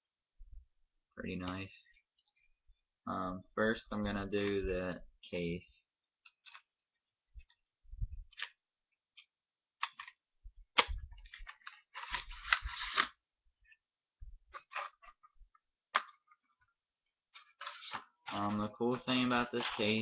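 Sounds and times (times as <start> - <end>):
packaging clicks and taps: 8.3 - 11.8.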